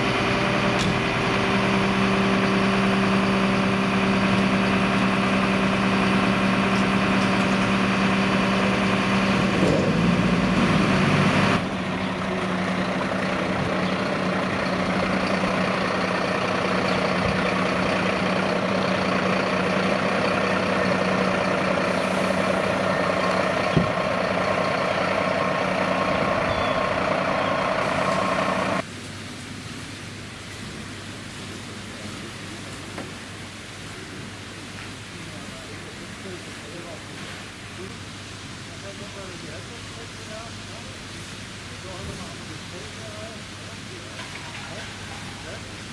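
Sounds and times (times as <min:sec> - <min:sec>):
fire truck engine idling: 0:00.0 - 0:09.6, 0:10.2 - 0:28.9
fire truck driving slowly: 0:00.0 - 0:45.9.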